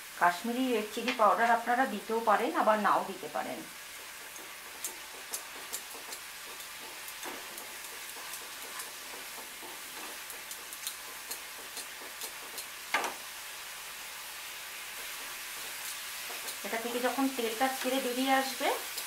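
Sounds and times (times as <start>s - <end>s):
masala frying in oil: 0.0s - 19.0s
wooden spatula knocking pan: 4.0s - 13.2s.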